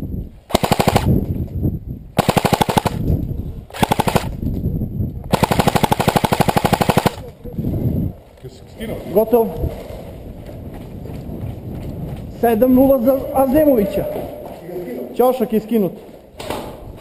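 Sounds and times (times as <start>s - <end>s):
airsoft rifle full-auto bursts: 0.5s - 1.2s, 2.2s - 3.0s, 3.7s - 4.4s, 5.3s - 7.2s.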